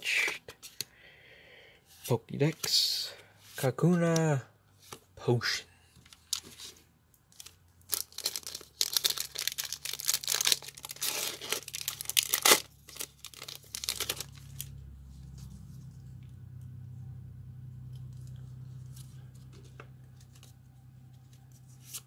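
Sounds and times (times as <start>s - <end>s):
foil wrapper tearing and crinkling: 7.9s - 14.7s
low steady hum: 11.5s - 22.0s
cards being handled: 17.9s - 22.0s.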